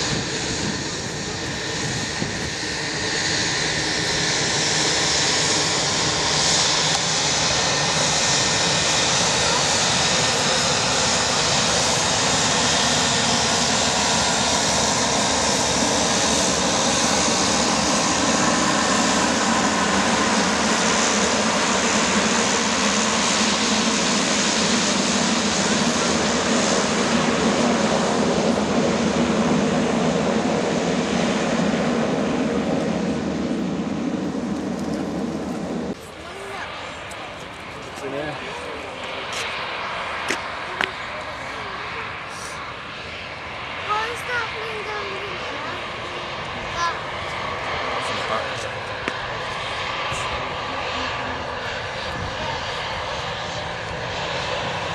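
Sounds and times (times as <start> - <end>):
turboprop aircraft taxiing: 0.0 - 54.9.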